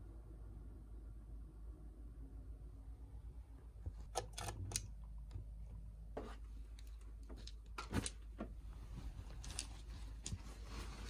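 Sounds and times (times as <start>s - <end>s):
small objects clicking and knocking: 9.3s - 10.4s.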